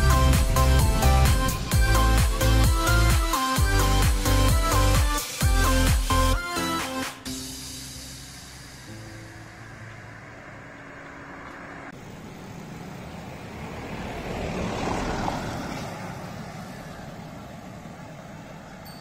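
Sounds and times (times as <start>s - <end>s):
vehicle passing: 0.0s - 3.2s, 7.4s - 19.0s
background music: 0.0s - 10.1s.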